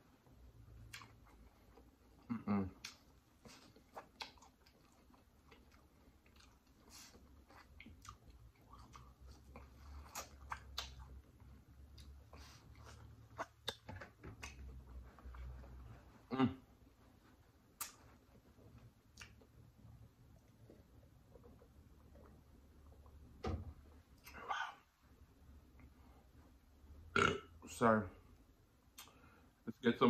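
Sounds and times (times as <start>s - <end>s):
wet chewing: 0.8s - 14.8s.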